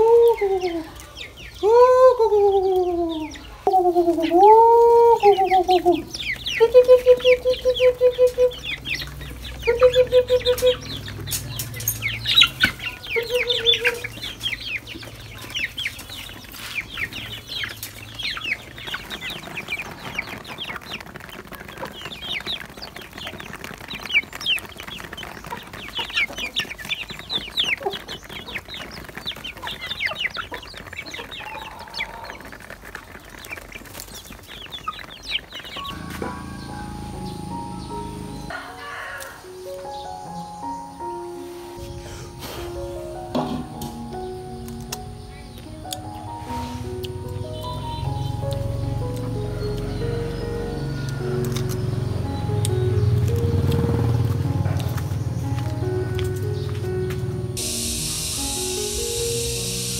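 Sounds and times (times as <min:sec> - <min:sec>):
chicks peeping and clucking: 0:00.0 - 0:59.9
drawn-out rising and falling calls: 0:00.0 - 0:59.9
short pulsed calls: 0:57.6 - 0:59.9.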